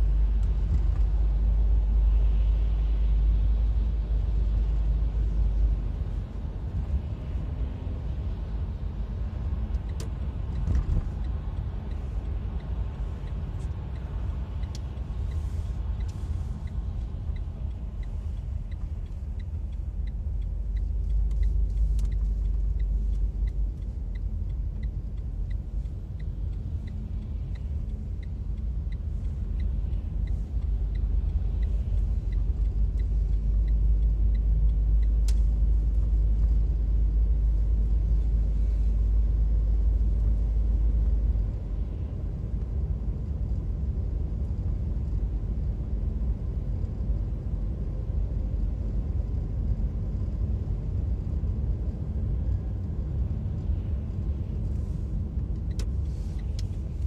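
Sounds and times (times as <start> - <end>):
car road and engine rumble: 0.0 - 57.0
light even ticking: 9.7 - 38.9.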